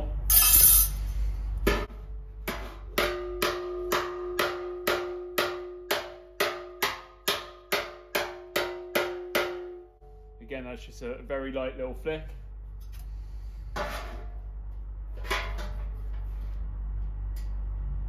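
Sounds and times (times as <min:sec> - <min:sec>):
metal clatter: 0:00.3 - 0:01.9
metal slapper striking steel panel: 0:01.7 - 0:09.9.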